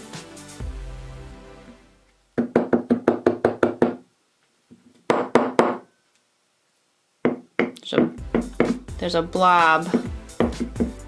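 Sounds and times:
background music: 0:00.0 - 0:02.3, 0:07.9 - 0:11.0
bottle knocking: 0:10.0 - 0:11.0.

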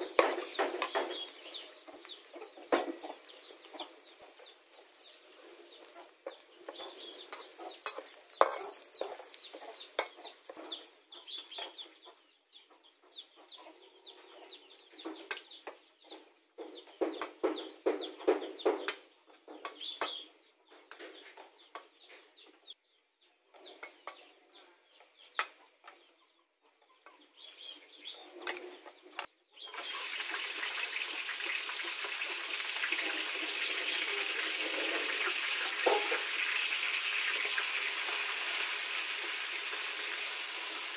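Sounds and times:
meat sizzling in a wok: 0:00.0 - 0:10.6, 0:29.7 - 0:40.9
chickens clucking: 0:00.0 - 0:40.5
metal spatula scraping a wok: 0:06.7 - 0:09.2.

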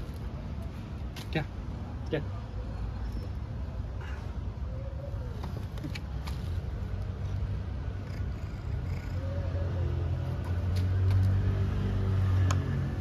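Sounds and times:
cat purring: 0:08.0 - 0:09.4.

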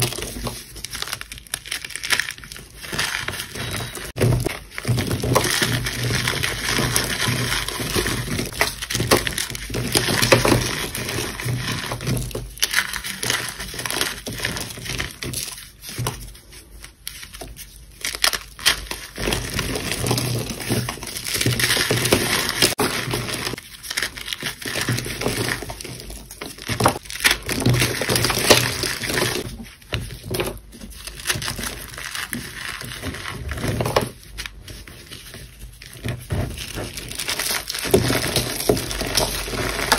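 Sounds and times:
hands crushing chalk blocks: 0:00.0 - 0:39.9.

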